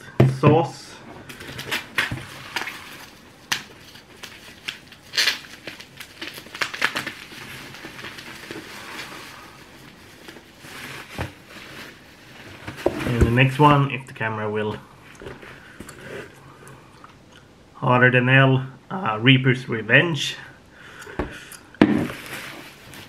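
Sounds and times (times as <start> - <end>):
bubble wrap and cardboard rustling: 1.2 - 14.0, 21.8 - 23.0.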